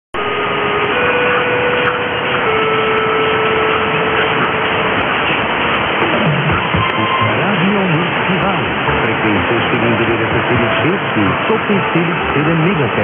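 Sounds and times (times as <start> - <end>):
radio static and hiss: 3.6 - 13.0.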